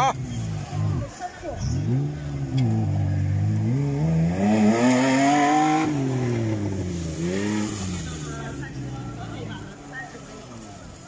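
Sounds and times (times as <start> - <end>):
engine revving hard: 1.6 - 9.3.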